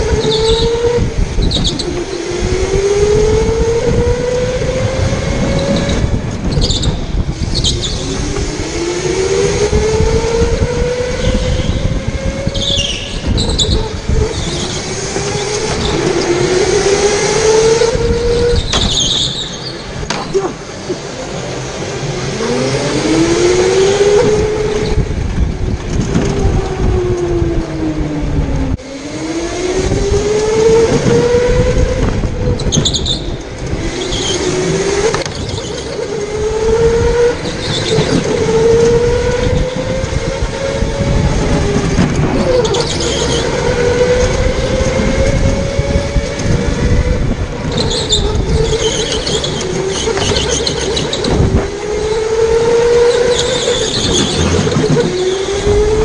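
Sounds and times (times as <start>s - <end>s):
tyres squealing on concrete: 12.5s - 16.7s, 18.4s - 21.2s, 32.6s - 33.4s, 35.1s - 36.2s, 37.4s - 38.4s, 42.4s - 43.7s, 47.7s - 55.5s.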